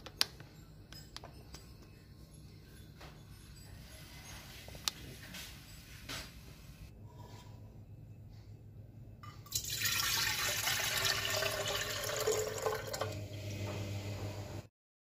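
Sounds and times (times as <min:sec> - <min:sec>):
water pouring into glass pot: 0:09.4 - 0:13.6.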